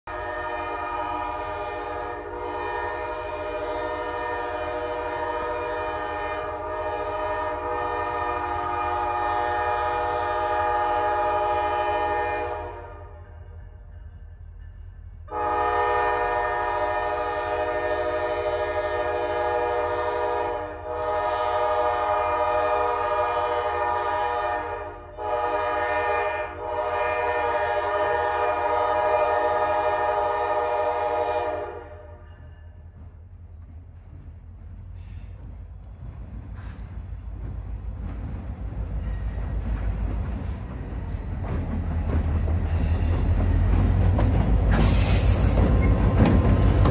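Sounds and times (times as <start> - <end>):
locomotive air horn blasts: 0.1 - 13.2, 15.3 - 32.3.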